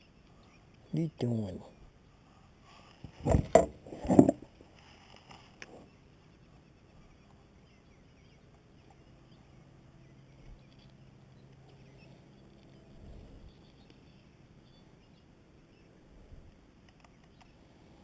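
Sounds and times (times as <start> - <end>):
faint low hum: 0.0 - 18.0
knocks and rustles: 3.0 - 4.6.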